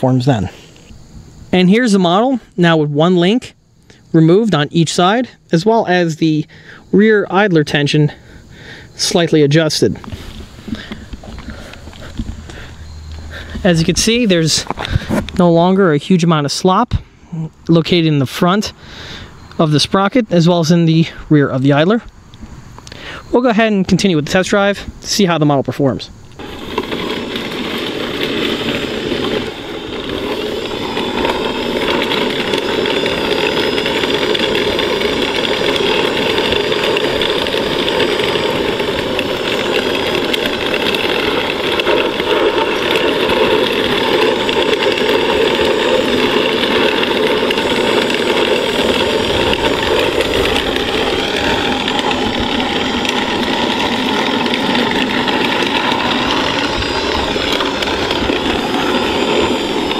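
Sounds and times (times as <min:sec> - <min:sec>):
electric motors whining: 0:03.6 - 0:16.6, 0:26.1 - 0:59.9
metal tracks clattering: 0:26.4 - 0:59.9.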